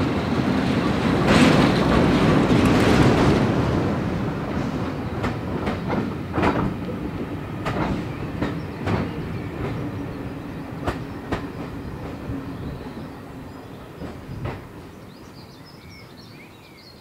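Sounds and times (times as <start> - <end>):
train wheels clicking over rail joints: 0.0 - 3.7, 4.4 - 13.0, 13.9 - 14.9
train rumbling: 0.0 - 16.3.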